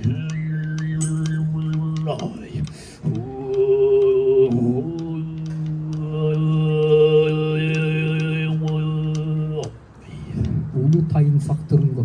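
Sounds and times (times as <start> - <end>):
whistle-like overtone melody: 0.0 - 2.1
throat singing drone: 0.0 - 11.1.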